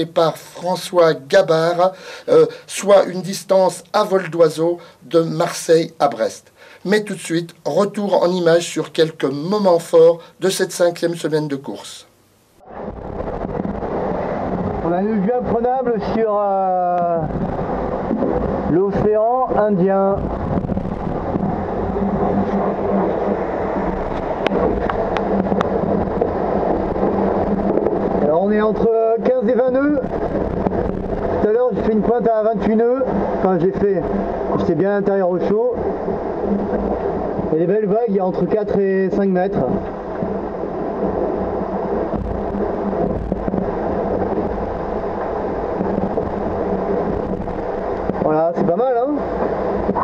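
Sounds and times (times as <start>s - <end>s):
steady low hum: 0.0s - 50.0s
water rushing past hull: 12.6s - 50.0s
wind buffeting microphone: 12.6s - 50.0s.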